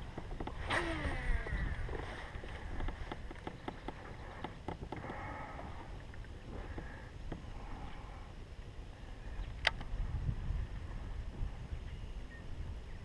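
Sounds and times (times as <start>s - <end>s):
wind rumble on microphone: 0.0s - 13.0s
fishing reel whir: 0.1s - 3.0s.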